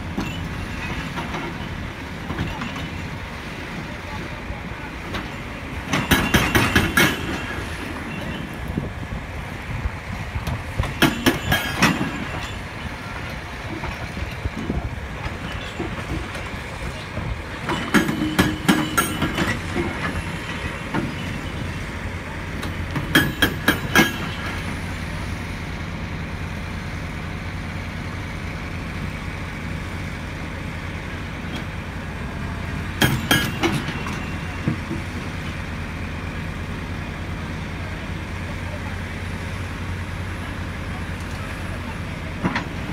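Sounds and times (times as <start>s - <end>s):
diesel engine drone: 0.0s - 42.9s
hydraulic breaker hammer strikes: 33.0s - 34.8s.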